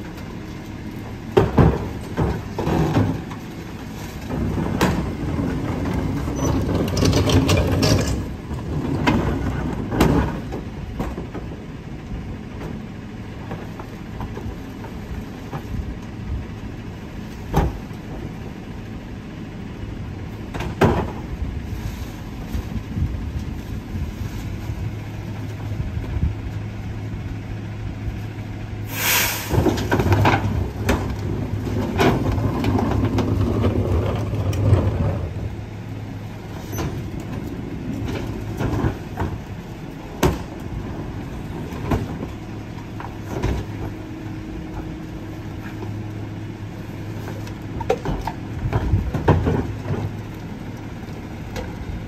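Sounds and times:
garbage truck diesel engine: 0.0s - 52.0s
carts knocking against hopper: 1.3s - 3.4s, 4.2s - 11.6s, 29.5s - 35.4s, 47.3s - 50.2s
hiss of air: 28.8s - 29.8s.

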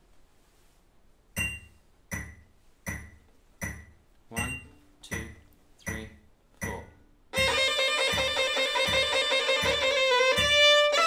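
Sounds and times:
metronome ticking: 1.4s - 11.0s
violin playing: 7.4s - 11.0s.

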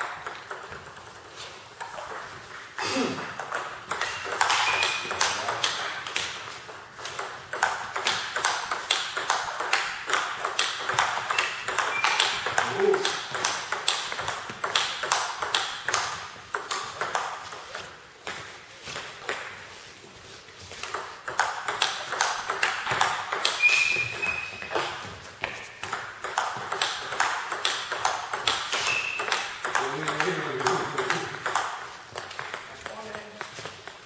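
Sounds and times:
table tennis ball clicks: 3.4s - 17.3s, 25.8s - 34.0s
short high squeak: 11.3s - 12.5s, 23.6s - 24.8s, 28.8s - 29.2s.

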